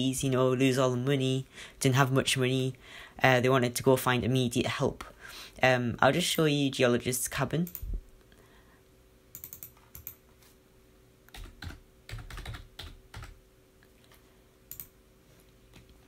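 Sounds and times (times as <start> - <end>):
typing on a keyboard: 9.4 - 10.2, 11.3 - 13.4, 14.7 - 14.9.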